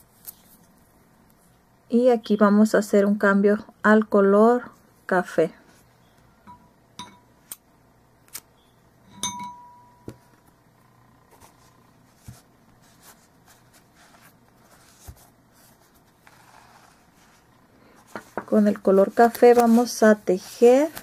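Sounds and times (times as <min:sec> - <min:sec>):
metallic clink: 0:06.5 - 0:07.3, 0:09.1 - 0:10.1.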